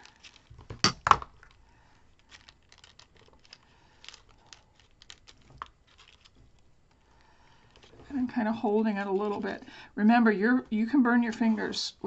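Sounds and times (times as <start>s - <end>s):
paper petals rustling: 0.0s - 0.8s, 1.4s - 9.6s.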